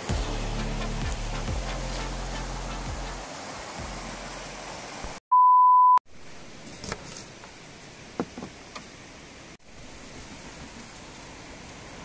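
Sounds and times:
steady beep tone: 0:05.3 - 0:06.0.

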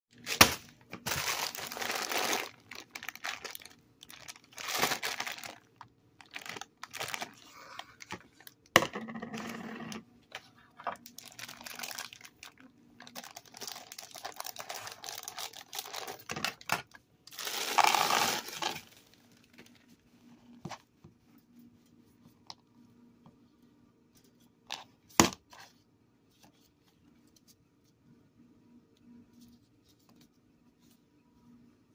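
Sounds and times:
plastic bag crinkling: 0:00.2 - 0:08.7, 0:10.9 - 0:16.7, 0:17.3 - 0:19.8
candies poured into plastic bowl: 0:00.3 - 0:08.6, 0:11.0 - 0:16.3, 0:17.3 - 0:19.1.

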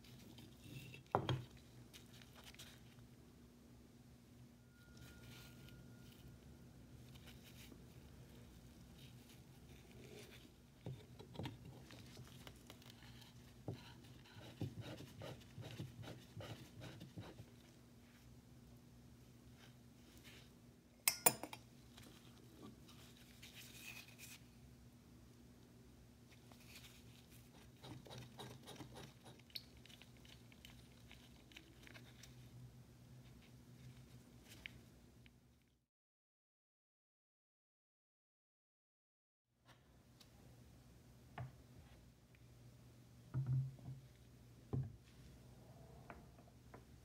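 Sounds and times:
faint low hum: 0:00.0 - 0:35.8.

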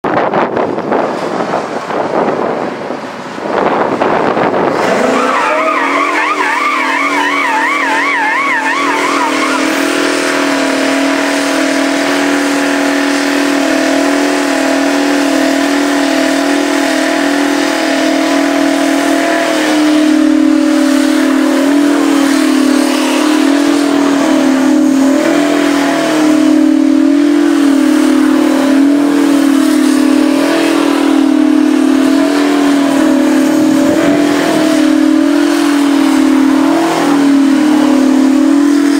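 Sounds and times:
truck engine at high revs: 0:00.0 - 0:38.9
warbling high whistle: 0:05.0 - 0:10.0.

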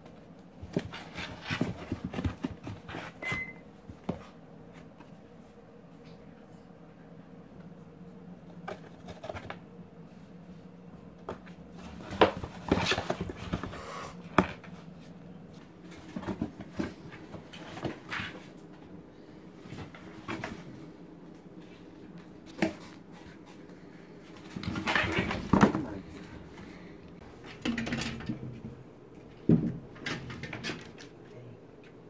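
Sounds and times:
cats pawing cardboard box: 0:00.0 - 0:05.2, 0:08.4 - 0:09.6, 0:11.2 - 0:18.9, 0:21.5 - 0:26.7
faint steady hum: 0:00.0 - 0:32.0.

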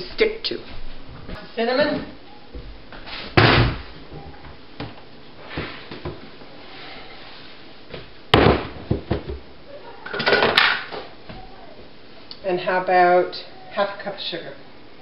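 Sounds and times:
containers knocking on counter: 0:08.4 - 0:09.4.

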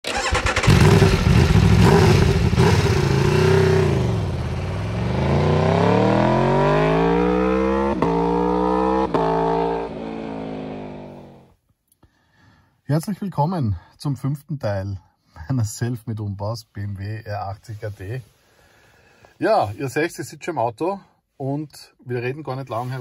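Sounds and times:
sharp engine cracks: 0:00.0 - 0:01.3
motorcycle engine revving: 0:00.1 - 0:11.4.

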